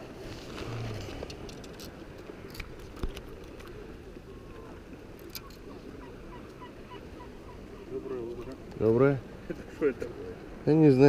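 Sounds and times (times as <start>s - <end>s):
sea noise: 0.0s - 11.0s.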